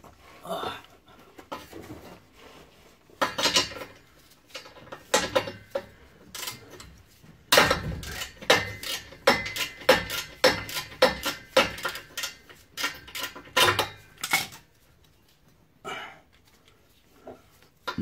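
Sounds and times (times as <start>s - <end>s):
ratchet clinking on metal bolts: 3.2s - 6.9s, 7.5s - 14.6s.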